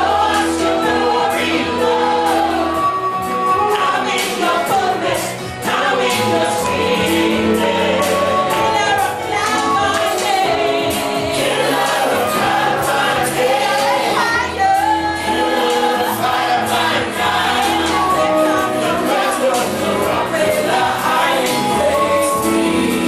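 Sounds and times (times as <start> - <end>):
woman singing: 0.0 - 11.4, 13.4 - 16.0, 17.2 - 20.6
band accompaniment: 0.0 - 23.0
choir voices: 0.0 - 23.0.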